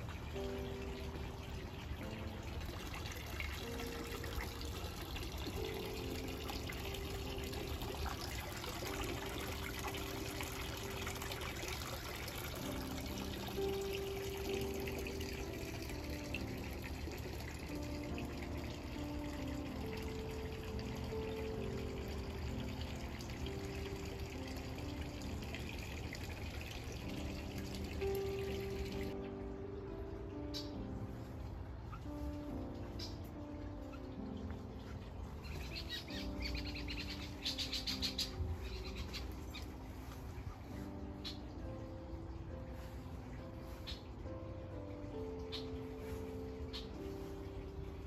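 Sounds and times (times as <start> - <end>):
water splashing into pond: 0.0 - 29.2
soft background music: 0.0 - 48.0.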